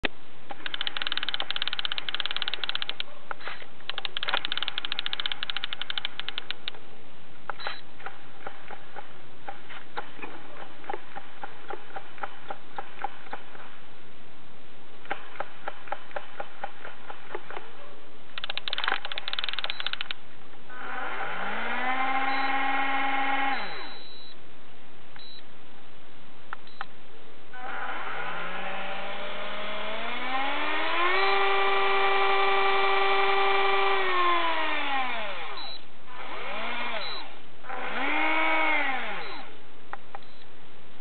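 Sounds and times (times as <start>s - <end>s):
fishing reel spool clicking: 0.6s - 3.0s, 3.9s - 6.7s, 18.4s - 20.2s
high electronic beeps: 18.5s - 20.1s, 23.5s - 24.4s
electric motor whine: 20.7s - 23.9s, 27.6s - 39.5s.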